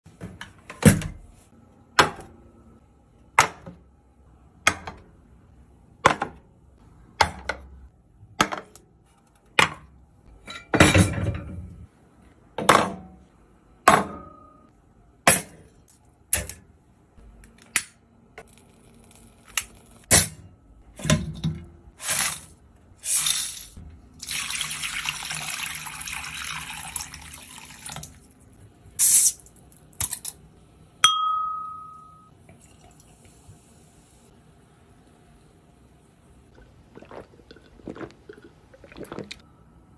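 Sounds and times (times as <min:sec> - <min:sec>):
water pouring into metal pan: 0:24.2 - 0:28.2.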